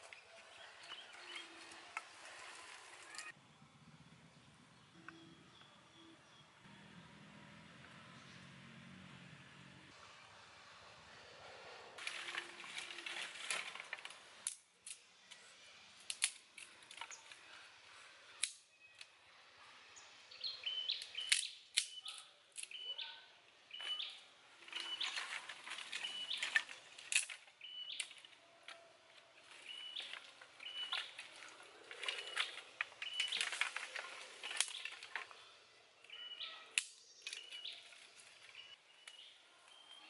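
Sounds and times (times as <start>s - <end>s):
bird chirping: 0.0s - 7.2s, 20.0s - 26.9s, 27.5s - 40.0s
dry sticks snapping: 12.8s - 15.0s, 16.0s - 17.2s, 18.4s - 19.1s, 21.0s - 22.8s, 24.6s - 28.8s, 29.5s - 35.4s, 36.7s - 37.8s.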